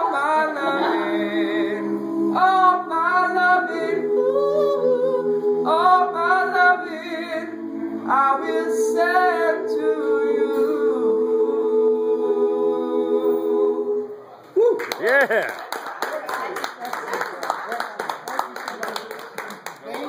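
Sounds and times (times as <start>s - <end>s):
male choir singing a cappella: 0.0s - 14.2s.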